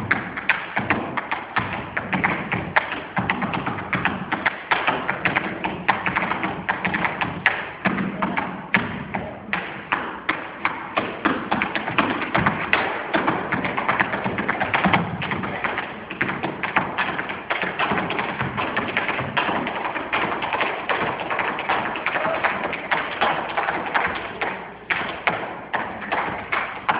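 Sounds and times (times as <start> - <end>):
tap shoes on a stage floor: 0.0 - 26.9.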